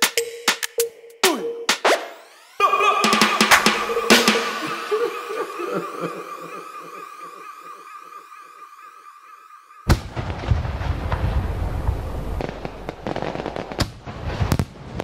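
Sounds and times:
firework bang: 0:09.9 - 0:15.0
fireworks crackling: 0:09.9 - 0:15.0
firework pops: 0:12.4 - 0:15.0.

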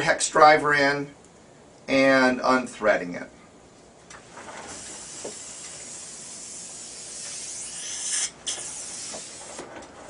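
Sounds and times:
dental suction hissing: 0:04.7 - 0:09.6.

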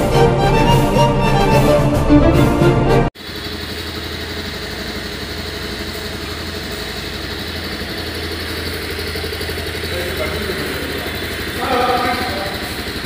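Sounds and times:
motorcycle engine idling: 0:03.2 - 0:13.0.

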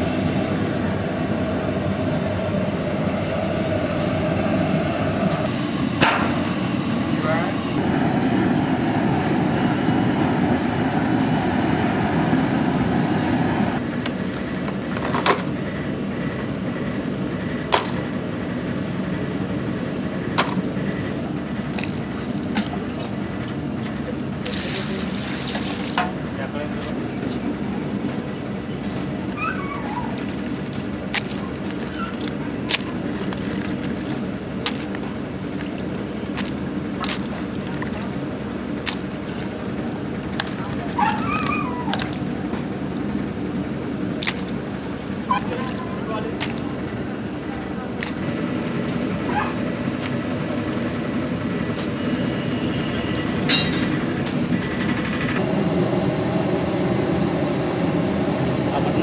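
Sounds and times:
low motor drone: 0:42.3 - 0:59.0.

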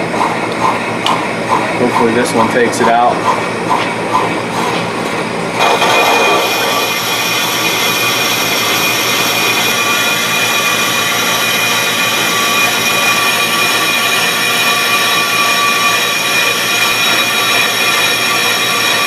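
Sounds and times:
lathe motor running: 0:00.0 - 0:19.0
high ringing squeal of cutting: 0:05.6 - 0:19.0.

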